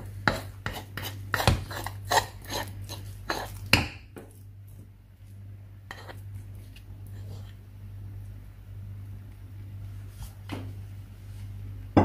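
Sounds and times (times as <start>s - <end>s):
metal spoon scraping and knocking: 0.2s - 3.8s.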